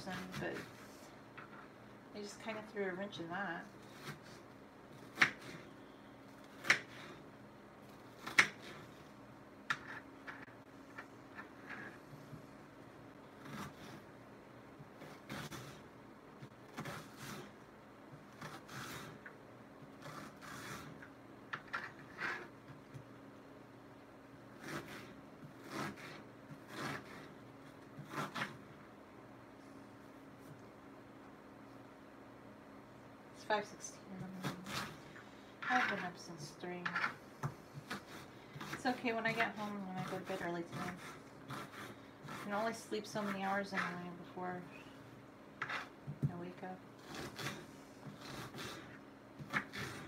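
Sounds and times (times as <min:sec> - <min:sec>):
knife slicing onion on board: 0:03.9 - 0:05.6, 0:06.5 - 0:07.2, 0:08.2 - 0:08.9, 0:16.4 - 0:17.6, 0:24.6 - 0:28.6, 0:35.6 - 0:44.0, 0:47.0 - 0:50.0.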